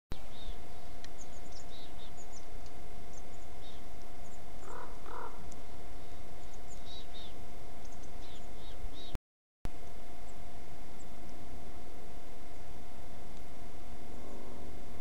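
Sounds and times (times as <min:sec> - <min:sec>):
small birds chirping: 0:00.1 - 0:09.2, 0:14.0 - 0:14.8
faint electronic whine: 0:00.2 - 0:15.0
microphone hiss: 0:00.2 - 0:15.0
raven calls: 0:04.6 - 0:07.4, 0:14.1 - 0:14.9.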